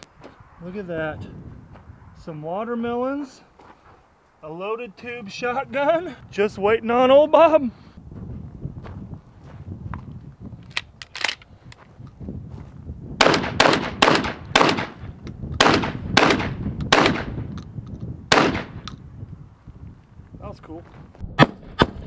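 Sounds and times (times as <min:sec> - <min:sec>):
shotgun shots echoing: 0:13.2 - 0:15.0, 0:15.6 - 0:17.4, 0:18.3 - 0:18.8.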